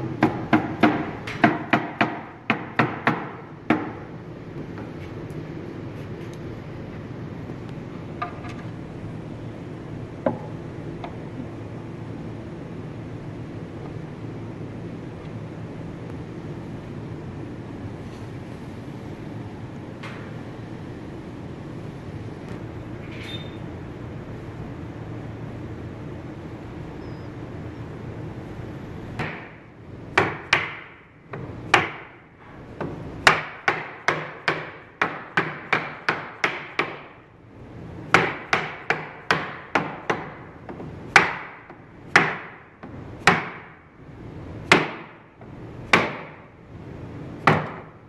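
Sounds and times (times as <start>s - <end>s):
mallet striking wooden panel: 0.2s - 4.0s, 38.2s - 42.6s, 44.7s - 45.2s.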